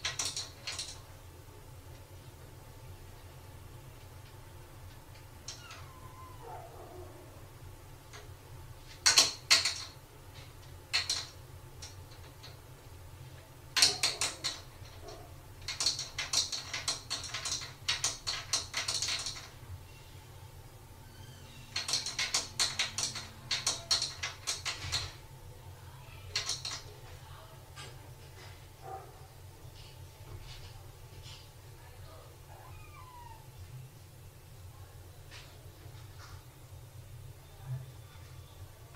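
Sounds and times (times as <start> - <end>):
cupboard doors rattling against lock: 9.0 - 10.0, 13.8 - 19.6, 21.7 - 25.2.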